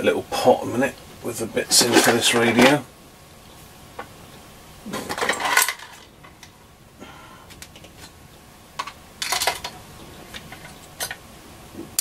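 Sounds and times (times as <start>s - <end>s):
screws and washers clattering: 1.7s - 2.8s, 4.9s - 6.5s, 8.8s - 11.2s.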